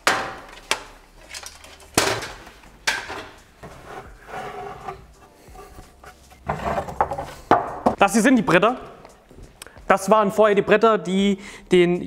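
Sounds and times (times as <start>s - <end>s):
wooden boards knocking and clattering: 0.0s - 0.6s, 1.9s - 3.8s, 6.4s - 8.0s.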